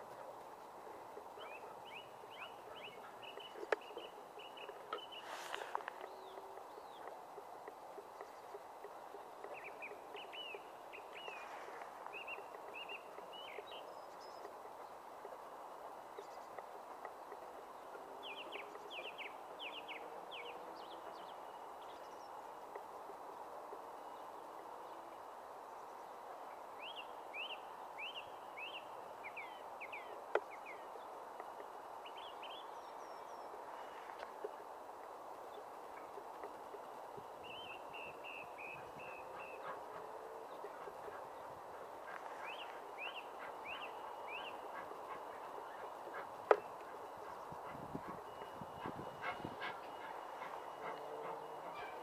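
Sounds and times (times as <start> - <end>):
outdoor hiss: 0.0 - 40.0
songbird chirping: 0.0 - 52.0.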